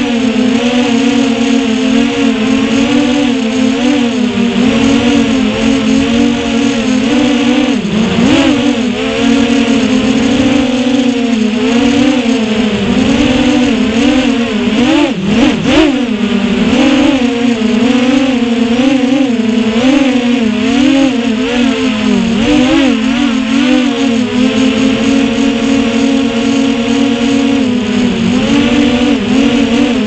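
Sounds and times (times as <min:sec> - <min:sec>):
drone motors whining: 0:00.0 - 0:30.0.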